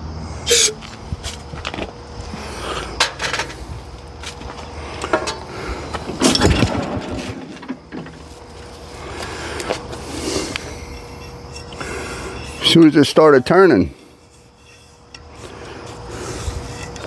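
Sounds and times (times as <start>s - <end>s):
engine turning over: 1.2s - 12.8s
starter rope clanks and rattles: 3.0s - 3.6s, 4.2s - 13.8s
heavy clunk: 5.1s - 8.4s.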